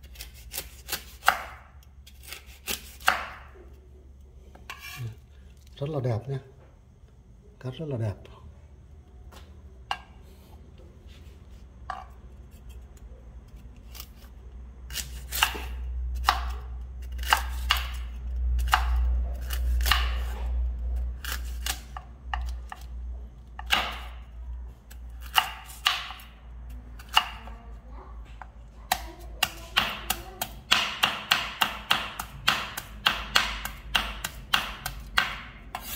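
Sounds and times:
knife chopping fruit: 0:00.0 - 0:03.6, 0:14.9 - 0:20.5, 0:23.6 - 0:24.3, 0:24.9 - 0:26.4, 0:27.0 - 0:27.5, 0:28.9 - 0:35.9.

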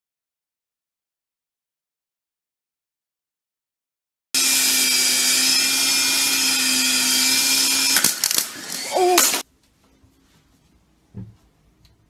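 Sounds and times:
electric motor whirring: 0:04.4 - 0:09.4.

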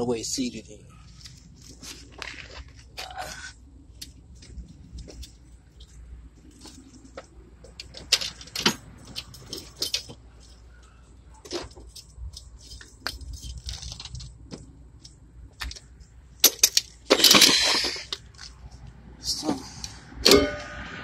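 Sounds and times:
tool clicks and metallic clinks: 0:16.4 - 0:18.2.

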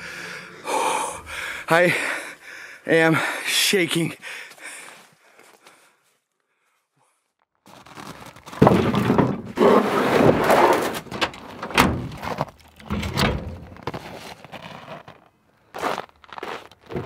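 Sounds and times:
metal clanks and thunks: 0:08.6 - 0:09.6, 0:11.0 - 0:13.8.

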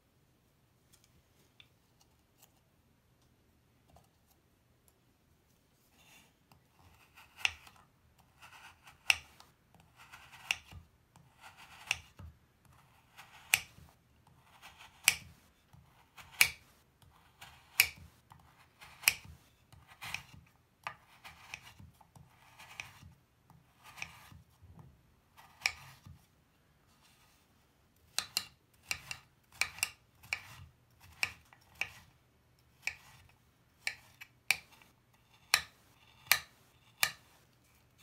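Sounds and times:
blade tapping cutting board: 0:17.7 - 0:18.1, 0:18.8 - 0:19.3, 0:35.4 - 0:37.2
knife scraping through bar: 0:18.7 - 0:20.4, 0:21.0 - 0:23.1, 0:23.7 - 0:24.4, 0:25.4 - 0:26.1, 0:28.2 - 0:32.1, 0:32.8 - 0:37.4.

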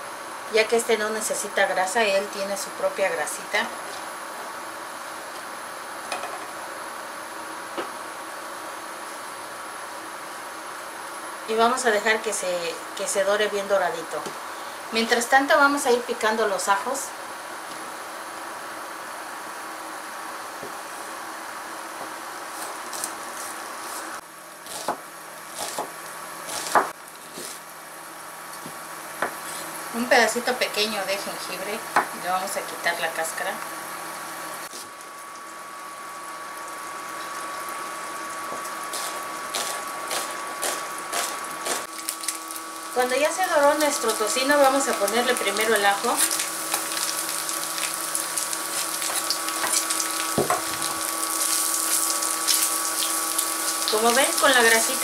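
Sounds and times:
bacon sizzling and crackling: 0:19.5 - 0:30.6, 0:33.6 - 0:55.0
knife chopping on wooden board: 0:24.7 - 0:25.0, 0:25.6 - 0:27.6.

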